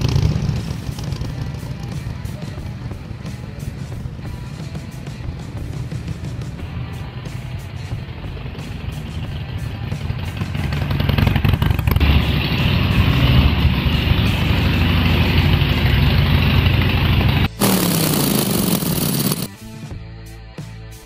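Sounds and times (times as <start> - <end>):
motorcycle engine rumbling: 0.0 - 19.5.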